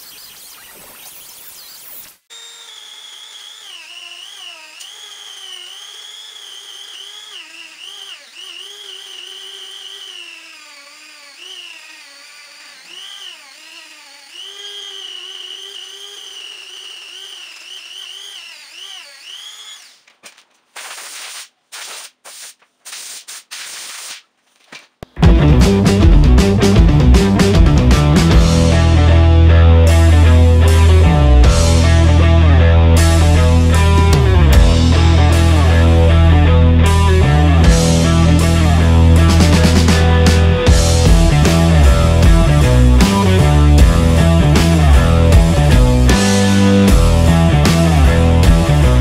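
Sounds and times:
rotary tool polishing metal: 1.8s - 20.1s, 20.7s - 24.2s
short bursts of hiss: 20.8s - 24.2s.

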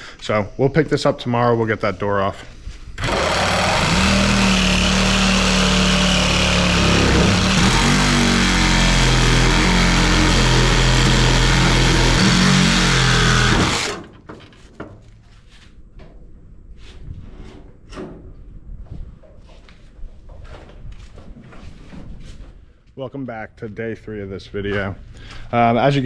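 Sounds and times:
reciprocating saw cutting metal: 3.0s - 14.0s.

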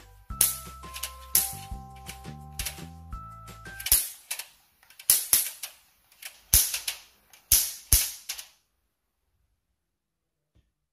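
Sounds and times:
electric spark snaps: 3.7s - 8.6s.

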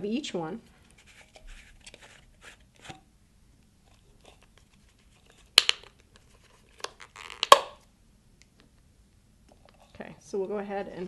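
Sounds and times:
plastic caps snapping off: 5.5s - 7.8s.

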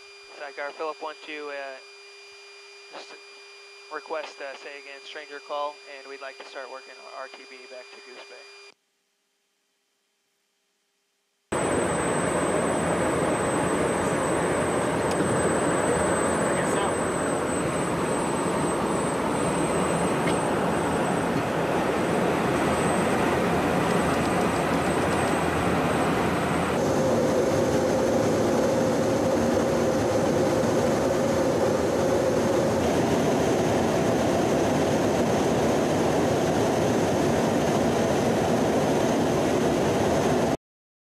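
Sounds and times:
faint steady hum: 0.0s - 35.0s
jet engines and air rush: 11.5s - 40.6s.

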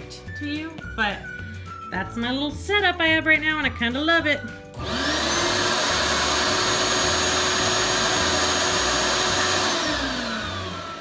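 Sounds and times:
shop vac motor whining: 4.8s - 11.0s.

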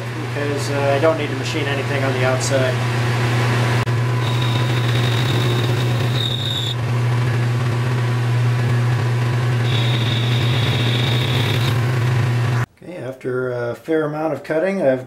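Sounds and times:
high-pitched cutting whine: 3.8s - 12.7s
lathe motor hum: 3.8s - 12.7s.

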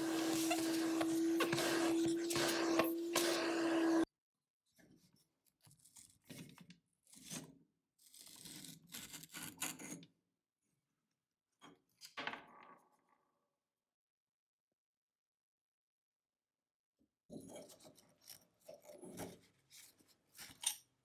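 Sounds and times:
vacuum cleaner humming: 0.0s - 4.1s.

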